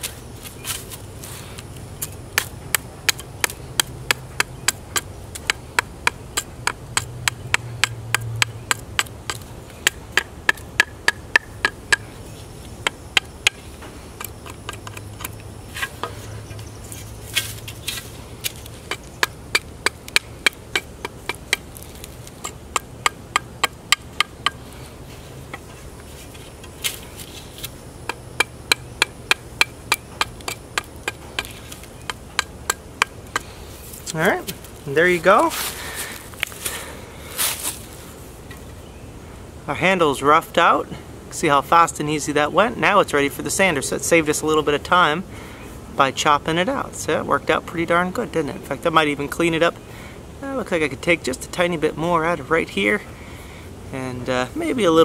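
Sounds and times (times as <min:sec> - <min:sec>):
knife chopping wood: 0:02.0 - 0:12.1, 0:14.2 - 0:16.2, 0:17.3 - 0:24.6, 0:26.5 - 0:34.7.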